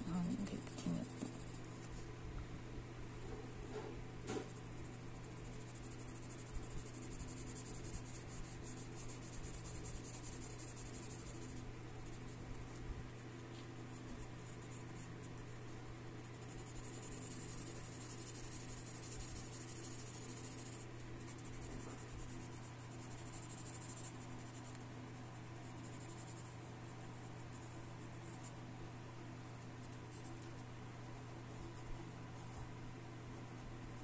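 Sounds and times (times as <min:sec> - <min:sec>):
pencil shading on paper: 0:00.0 - 0:01.7, 0:04.3 - 0:12.8, 0:13.6 - 0:28.6
steady low hum: 0:00.0 - 0:34.0.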